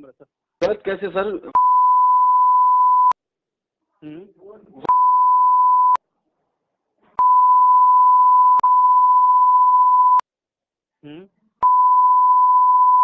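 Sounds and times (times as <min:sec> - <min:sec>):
censor bleep: 0:01.6 - 0:03.2, 0:04.9 - 0:06.0, 0:07.2 - 0:10.2, 0:11.6 - 0:13.0.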